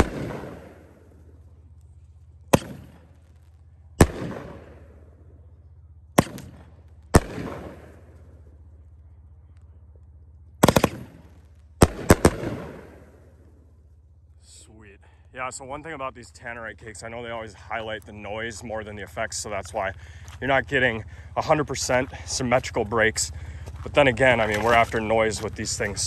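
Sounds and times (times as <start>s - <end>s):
firework bangs with rumbling echo: 0.0s - 1.1s, 2.5s - 5.1s, 6.2s - 8.3s, 10.6s - 13.7s.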